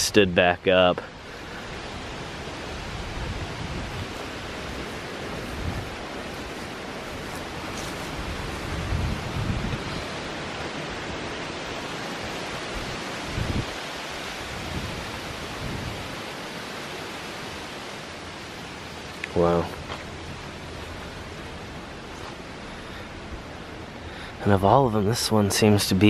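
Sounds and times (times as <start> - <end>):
wind buffeting microphone: 1.2 - 19.1.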